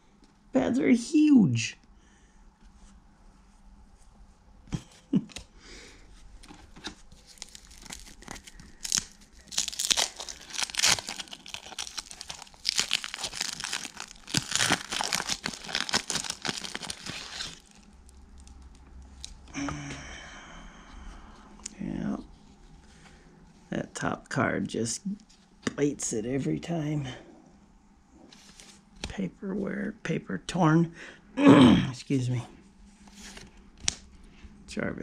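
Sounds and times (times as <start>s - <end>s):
foil wrapper tearing and crinkling: 7.1s - 19.4s.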